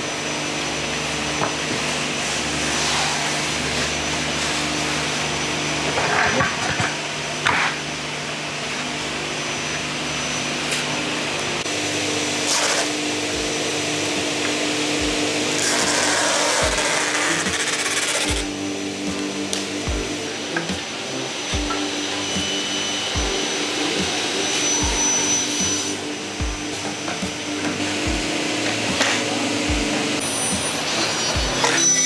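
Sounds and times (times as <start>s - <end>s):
power tool bursts: 11.6s - 32.0s.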